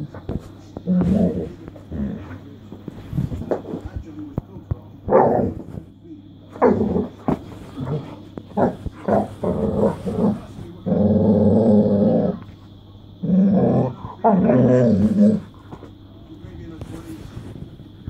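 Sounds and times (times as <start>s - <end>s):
dog growling: 0.0s - 3.7s, 5.0s - 5.8s, 6.5s - 12.6s, 13.2s - 15.9s.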